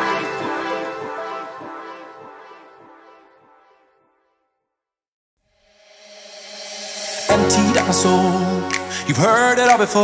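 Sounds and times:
song intro music: 5.6 - 10.0.

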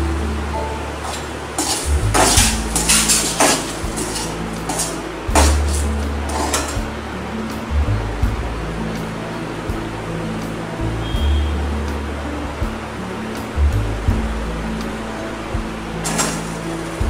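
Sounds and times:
metal spoon scraping a pan: 1.0 - 6.8, 16.0 - 16.7.

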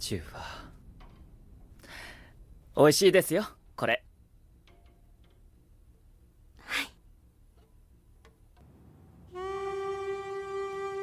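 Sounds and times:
held wind instrument note: 9.2 - 11.0.

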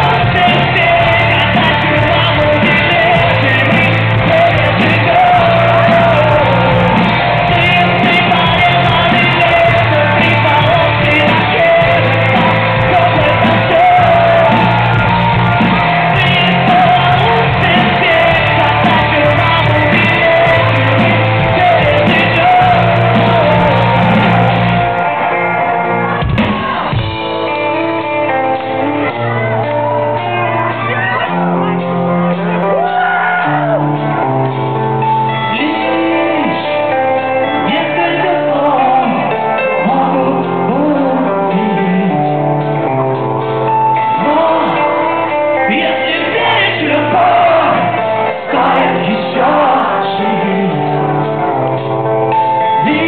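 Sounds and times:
live rock band: 0.0 - 53.0
man singing lead vocals: 0.0 - 53.0.

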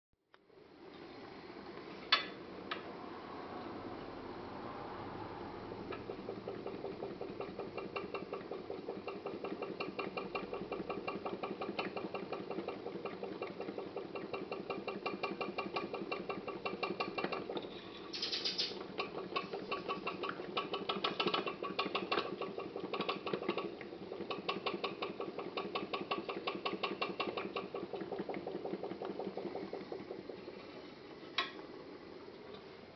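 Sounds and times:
pop-pop boat engine putting: 4.0 - 32.2
sharp click: 18.2 - 18.8.

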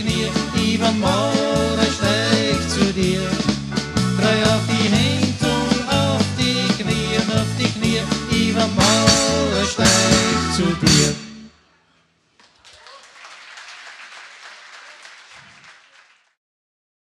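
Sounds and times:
polka band playing: 0.0 - 11.5
audience applause: 12.4 - 16.4.

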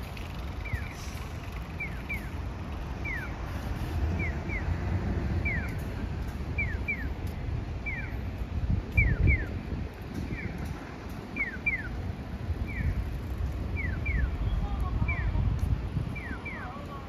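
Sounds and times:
wind buffeting microphone: 0.0 - 17.0
crossing signal chirps: 0.6 - 1.2, 1.8 - 5.9, 6.5 - 8.3, 9.0 - 9.7, 11.3 - 12.0, 12.6 - 13.1, 13.7 - 15.4, 16.0 - 17.0.

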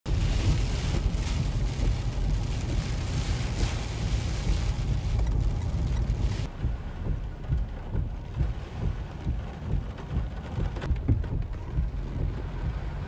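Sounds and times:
tyres hissing on wet road: 0.1 - 6.5
car cabin low rumble: 0.1 - 13.0.

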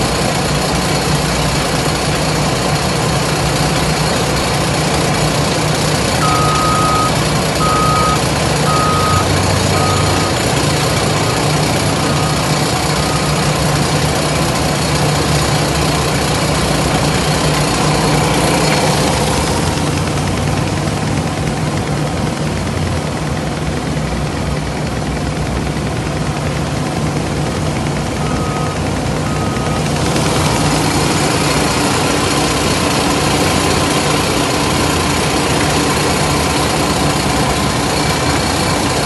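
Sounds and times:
heavy diesel machinery running: 0.0 - 39.0
reversing alarm beeping: 6.2 - 13.6, 28.2 - 32.1.

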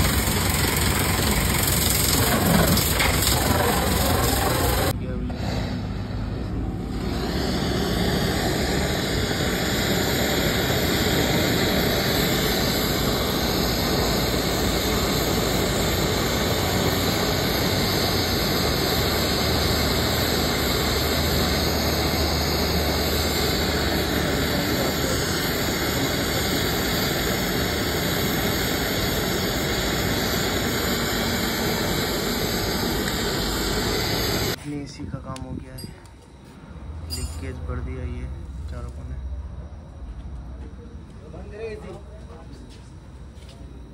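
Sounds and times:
steady loud rushing noise: 0.0 - 34.7.

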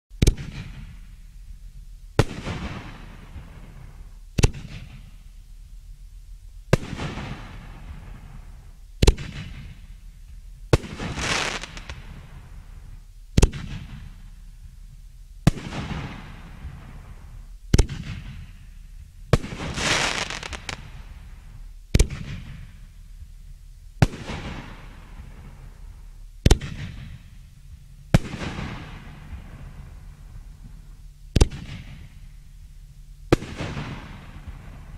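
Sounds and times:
fireworks burst hiss: 0.2 - 34.9
fireworks shells firing: 10.8 - 12.2, 19.4 - 21.1.

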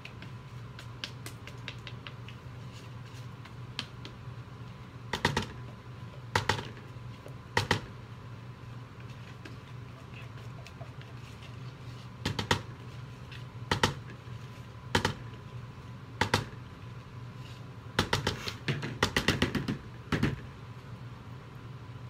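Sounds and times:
plastic spatula tapping pitcher: 0.0 - 2.4.

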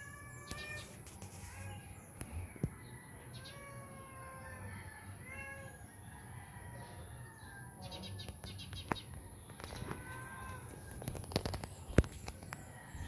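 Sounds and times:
cat meowing: 0.0 - 1.9, 3.4 - 5.8.

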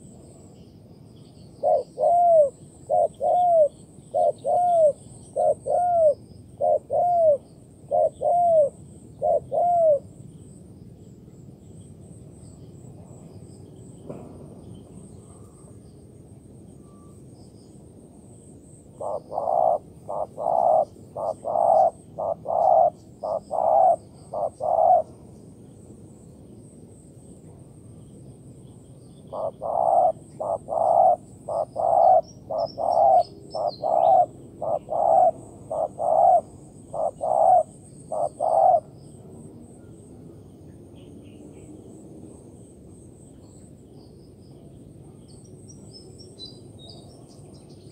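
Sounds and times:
dove cooing: 1.6 - 10.1, 19.0 - 25.2, 29.3 - 38.9.

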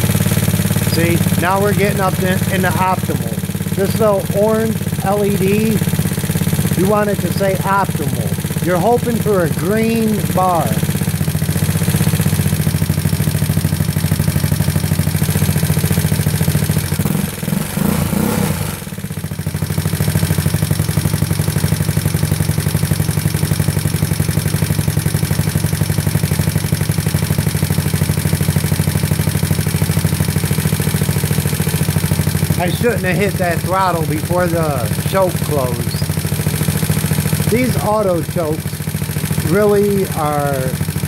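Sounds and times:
engine throttle blip: 0.0 - 21.1
scooter engine idling: 0.0 - 41.0.

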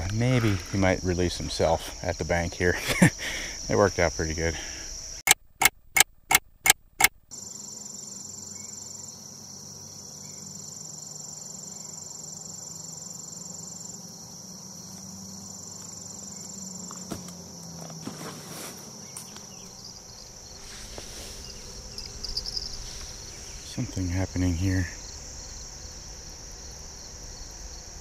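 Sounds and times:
crickets chirping: 0.0 - 5.7, 7.3 - 28.0
faint rustles: 16.9 - 25.6.

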